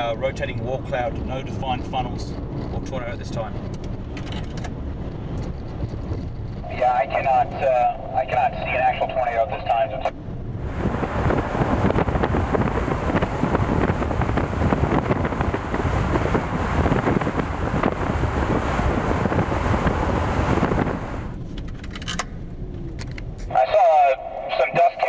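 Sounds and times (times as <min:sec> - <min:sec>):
wind buffeting microphone: 0:00.0 - 0:21.8
car road noise: 0:00.0 - 0:25.0.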